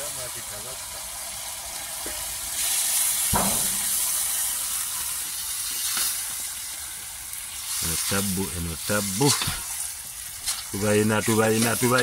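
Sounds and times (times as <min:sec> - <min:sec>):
tomatoes sizzling in wok: 0:00.0 - 0:12.0
knock: 0:03.4 - 0:03.9.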